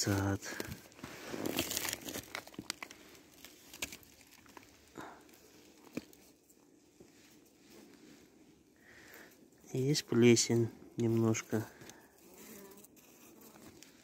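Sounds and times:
plastic cover crinkling and rustling: 0:00.0 - 0:06.4.

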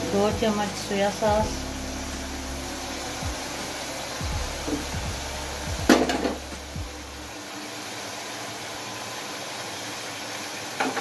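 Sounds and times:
low hum: 0:00.0 - 0:07.5
food sizzling and bubbling in a pot: 0:00.0 - 0:11.0.

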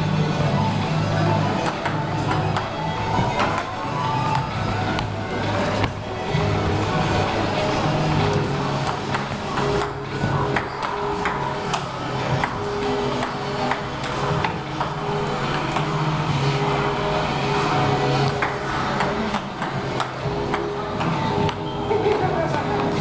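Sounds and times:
steady drone: 0:00.0 - 0:23.0
table tennis ball hits: 0:01.6 - 0:05.1, 0:08.8 - 0:16.0, 0:18.3 - 0:23.0.

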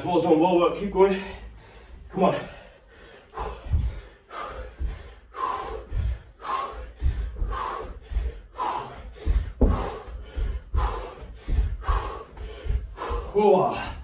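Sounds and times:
feet thudding on carpet: 0:06.0 - 0:13.3.

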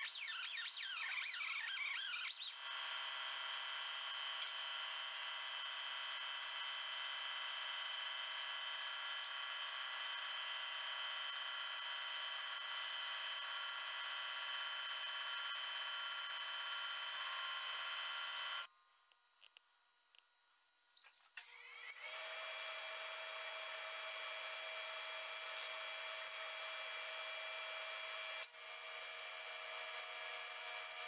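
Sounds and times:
die grinder whining: 0:03.4 - 0:18.7, 0:21.4 - 0:31.0.

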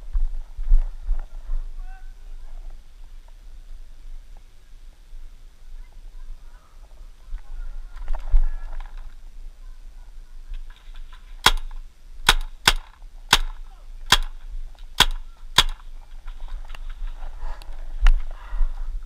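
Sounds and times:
rustling: 0:10.3 - 0:11.9, 0:12.5 - 0:18.6
paintball marker shots: 0:11.4 - 0:14.4, 0:15.0 - 0:15.9.

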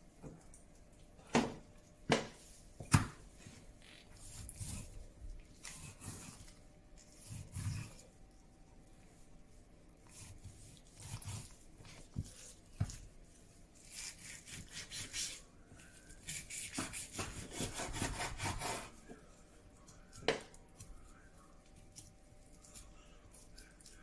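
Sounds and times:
knife sawing through meat: 0:05.6 - 0:06.5, 0:07.1 - 0:08.0, 0:10.1 - 0:11.5, 0:13.8 - 0:15.4, 0:16.1 - 0:19.0.

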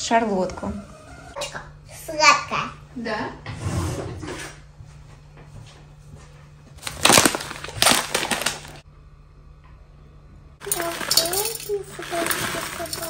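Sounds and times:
plastic pouch crinkling: 0:06.8 - 0:08.8.

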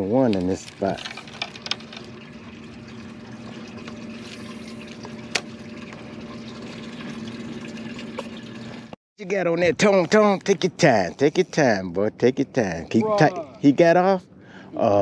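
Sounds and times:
water noise: 0:00.1 - 0:09.0
small motor humming: 0:01.6 - 0:09.0.

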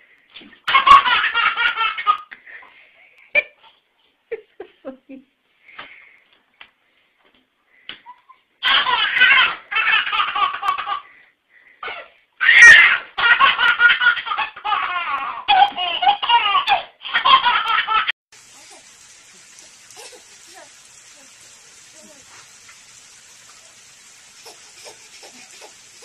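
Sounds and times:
baby belly-laughing: 0:08.1 - 0:11.1, 0:11.8 - 0:18.8, 0:19.9 - 0:20.5, 0:24.4 - 0:26.0.

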